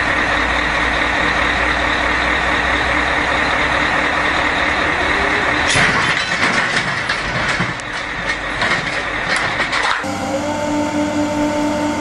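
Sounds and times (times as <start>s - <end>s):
heavy vehicle engine running: 0.0s - 12.0s
sharp knocks and clanks: 5.7s - 10.1s.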